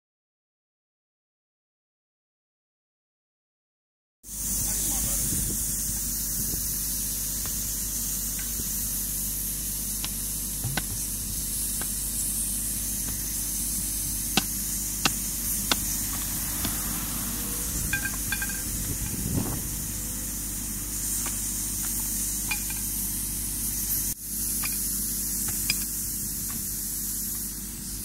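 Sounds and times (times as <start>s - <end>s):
compressed air hissing: 4.3s - 28.0s
low steady hum: 11.1s - 23.8s.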